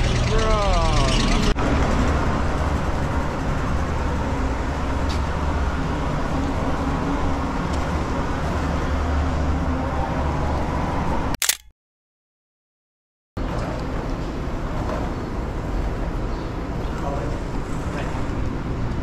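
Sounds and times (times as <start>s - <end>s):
low outdoor rumble: 0.0s - 10.5s
sharp click: 11.4s - 11.7s.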